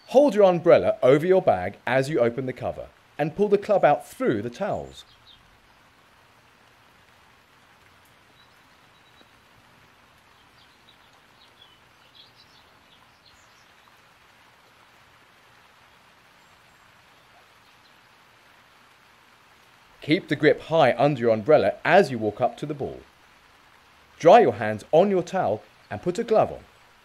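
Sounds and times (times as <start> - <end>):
soft outdoor hiss: 0.0 - 27.0
faint bird chirps: 8.3 - 9.4.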